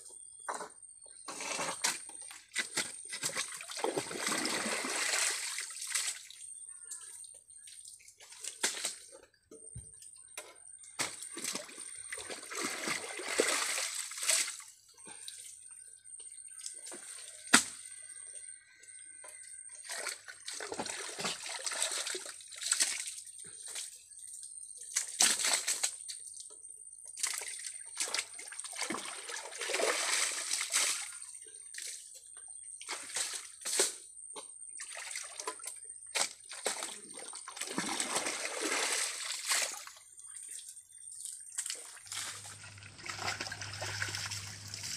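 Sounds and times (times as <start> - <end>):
sloshing in mud and water: 1.7 - 6.7, 7.5 - 9.4, 10.8 - 15.5, 19.7 - 24.2, 27.1 - 32.1, 34.7 - 44.9.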